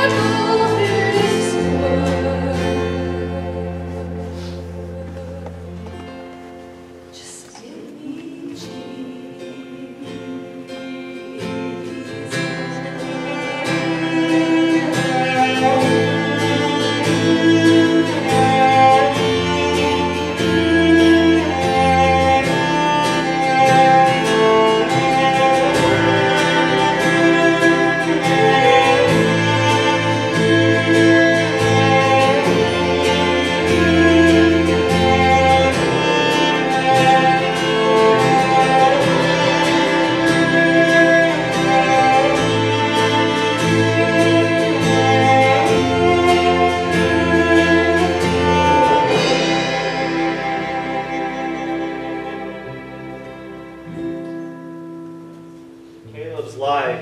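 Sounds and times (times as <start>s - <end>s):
guitar: 0.0s - 57.0s
sustained string-like tones: 0.0s - 57.0s
electric bass: 12.3s - 57.0s.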